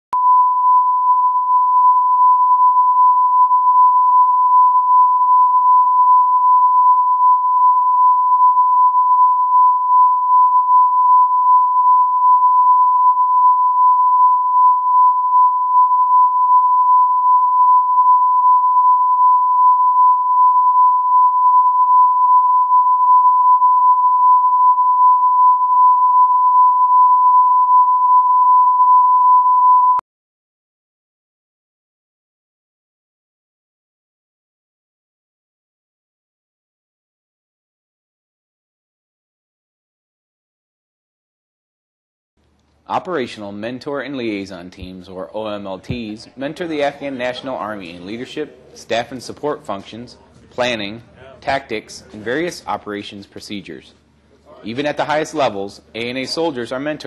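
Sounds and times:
steady reference tone beep: 0.2 - 30.0.

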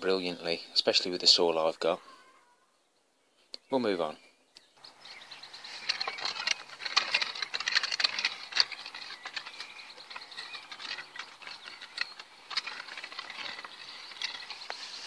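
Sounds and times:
weeding tool scraping stony soil: 5.0 - 15.0.

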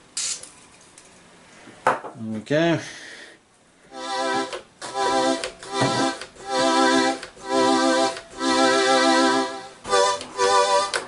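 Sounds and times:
synthesizer held chords: 3.9 - 11.0.

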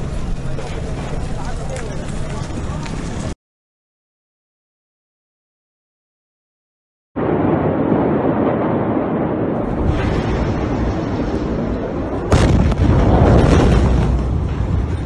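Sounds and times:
explosion rumbling: 7.2 - 15.0
sharp blast bang: 7.2 - 15.0.

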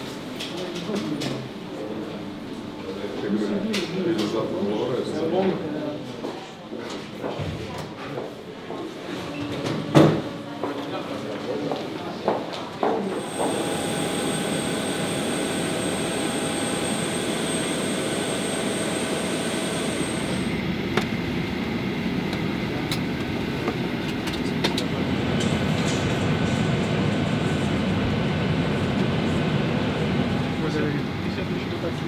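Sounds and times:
high engine whine: 13.1 - 32.0
airliner roar: 13.2 - 32.0
cabin air conditioning rush: 13.2 - 32.0.

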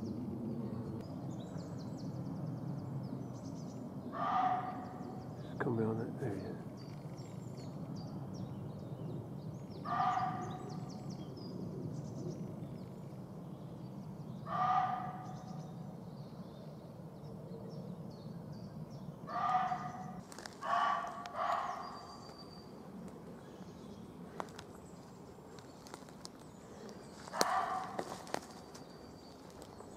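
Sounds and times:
small birds chirping: 0.0 - 29.9
deer barking: 4.2 - 5.1, 9.9 - 10.6, 14.5 - 15.3, 19.3 - 22.1, 27.3 - 28.3.

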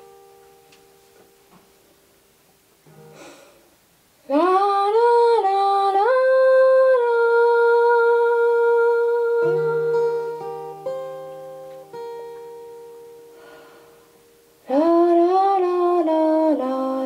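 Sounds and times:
acoustic guitar picking: 0.0 - 2.1, 2.8 - 3.6, 6.6 - 17.0
woman singing long note: 4.3 - 10.3.

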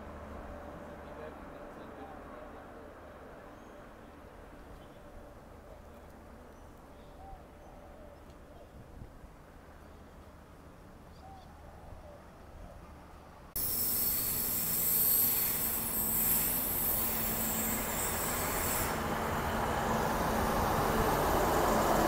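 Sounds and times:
train engine and wheels rumbling: 0.0 - 22.0
high-pitched wheel hiss: 13.6 - 19.1.

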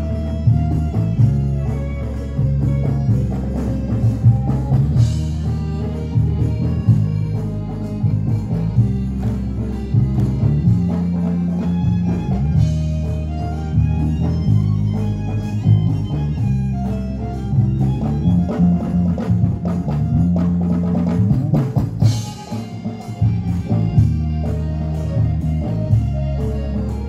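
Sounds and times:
drums: 0.0 - 27.0
electric bass line: 0.0 - 27.0
keyboard: 0.0 - 27.0
violin melody: 0.0 - 27.0.

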